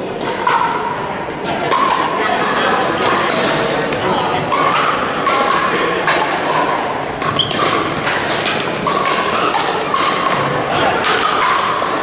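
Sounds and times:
paddles hitting plastic ball: 0:00.1 - 0:12.0.

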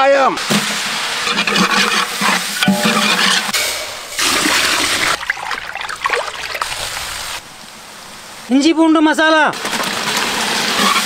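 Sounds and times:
metal ladle scraping pot: 0:01.2 - 0:05.2.

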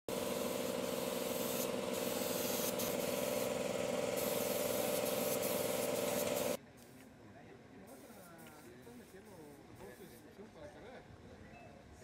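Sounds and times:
air compressor hum: 0:00.1 - 0:06.6
paint spray gun hissing: 0:00.1 - 0:06.6, 0:07.9 - 0:10.3.

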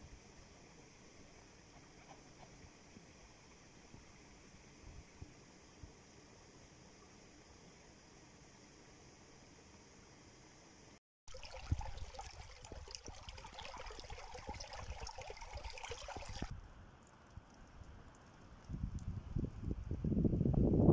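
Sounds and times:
faint hiss: 0:00.0 - 0:17.0
stream splashing over stones: 0:11.3 - 0:16.5.

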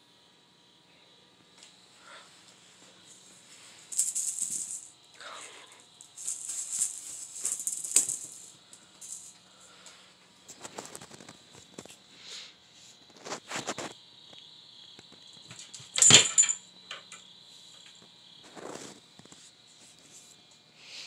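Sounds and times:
kittens scratching and rattling: 0:03.5 - 0:09.4, 0:10.5 - 0:12.0, 0:15.2 - 0:20.2.

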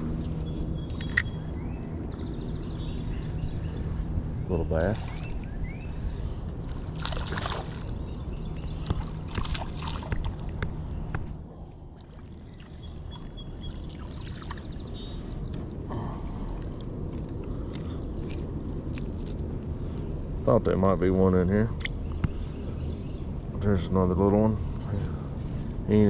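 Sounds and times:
water sloshing and splashing: 0:04.8 - 0:05.5, 0:06.6 - 0:08.2, 0:08.8 - 0:10.8, 0:11.8 - 0:14.8.

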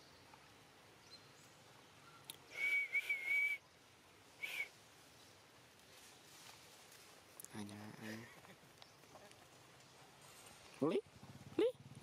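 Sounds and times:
person whistling: 0:02.5 - 0:03.6, 0:04.4 - 0:04.7.

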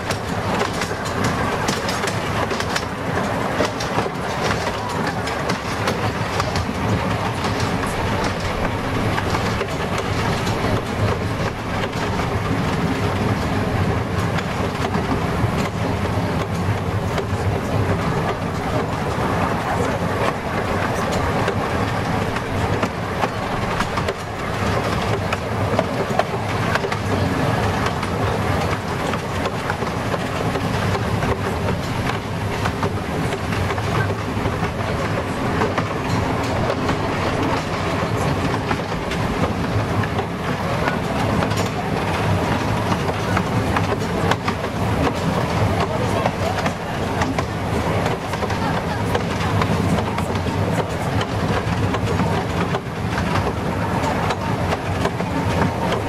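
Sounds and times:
faint rail clicks: 0:00.0 - 0:56.0
train wheels rumbling on rail: 0:00.0 - 0:56.0.

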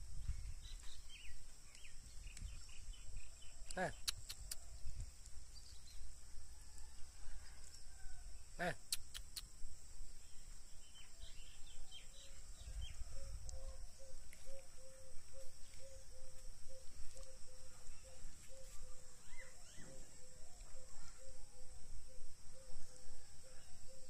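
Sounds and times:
small birds chirping: 0:00.0 - 0:06.1, 0:08.8 - 0:21.8.

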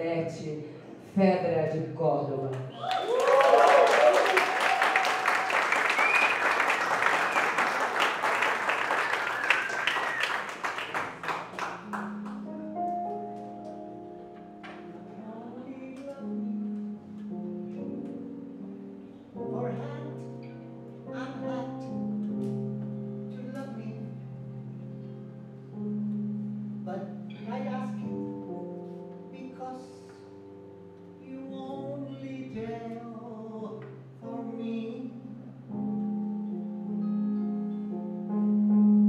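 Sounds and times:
audience applauding and cheering: 0:02.7 - 0:12.5
band playing slow instrumental: 0:11.8 - 0:19.4.

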